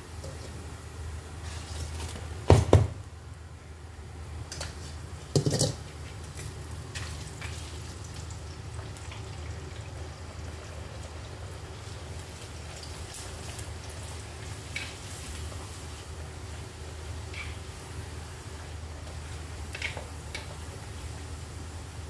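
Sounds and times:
crackers sizzling in hot oil: 0.0s - 22.0s
faint crackles: 10.5s - 21.4s.

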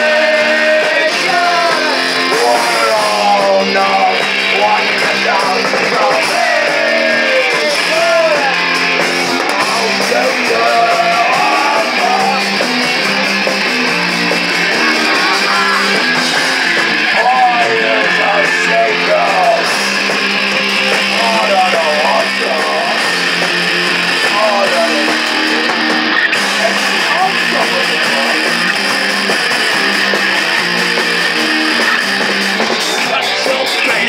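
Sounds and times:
person singing: 0.0s - 12.9s, 14.1s - 19.8s, 21.0s - 23.1s
drums: 0.0s - 34.0s
electric guitar chords: 0.0s - 34.0s.

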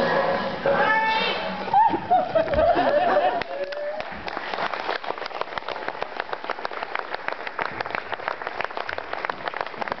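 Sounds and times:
audience clapping: 2.4s - 10.0s.

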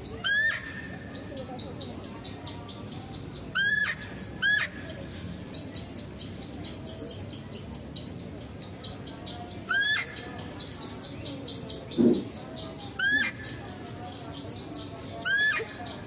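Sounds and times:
deer high-pitched squeals: 0.2s - 0.9s, 3.6s - 4.8s, 15.2s - 15.8s.

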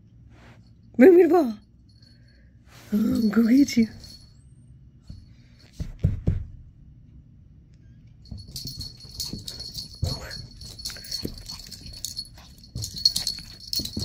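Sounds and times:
harness tag jingling: 2.0s - 4.4s, 8.2s - 14.0s
puppy scampering on carpet: 8.3s - 14.0s.

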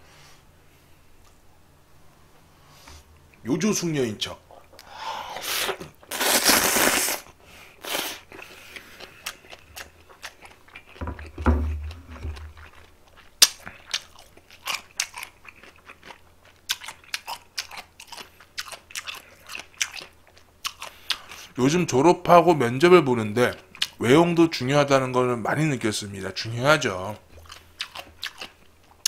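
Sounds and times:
slurping noodles: 5.3s - 9.2s
crunchy chewing: 5.6s - 21.5s, 27.4s - 29.0s.

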